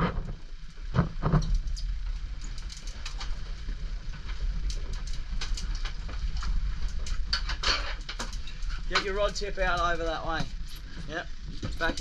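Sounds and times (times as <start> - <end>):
boat rumble: 0.0 - 12.0
sharp clicks and ticks: 4.3 - 10.8.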